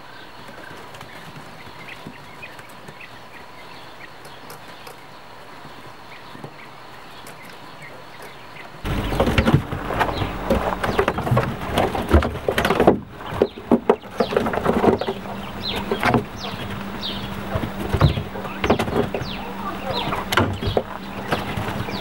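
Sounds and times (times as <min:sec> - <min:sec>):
quail chirping: 0:06.1 - 0:22.0
steady low hum: 0:08.6 - 0:22.0
rustling and clicking in bedding: 0:08.9 - 0:22.0.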